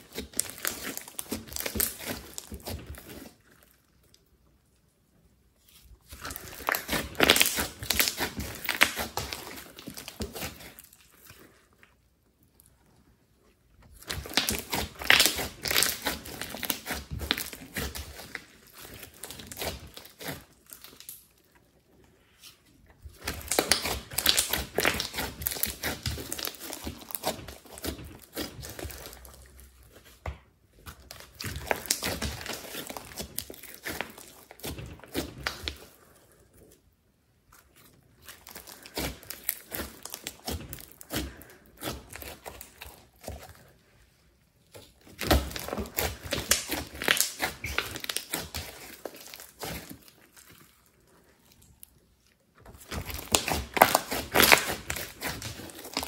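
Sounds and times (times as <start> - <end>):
hands squeezing sticky slime: 0.0 - 56.0.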